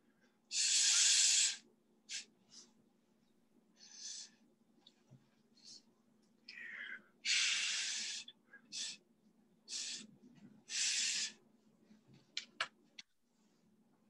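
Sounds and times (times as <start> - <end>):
breath puffs hissing: 0.5 - 2.7, 7.3 - 9.0, 9.7 - 10.1, 10.7 - 11.4.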